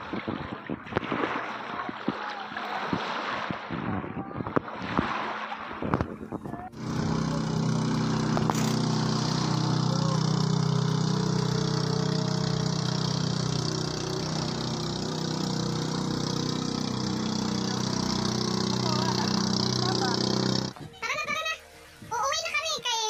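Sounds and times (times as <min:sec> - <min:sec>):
small boat engine running: 0:04.6 - 0:20.9.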